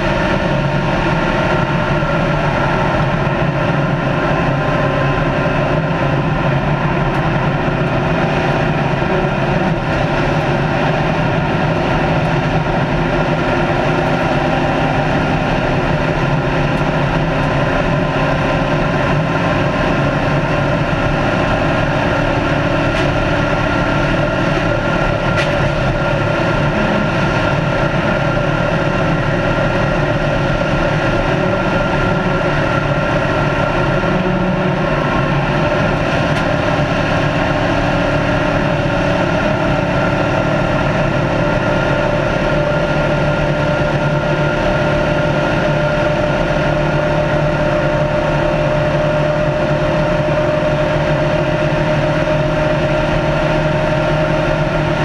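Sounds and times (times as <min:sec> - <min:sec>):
race car engine running: 0:00.0 - 0:55.0
road and wind noise: 0:00.0 - 0:55.0.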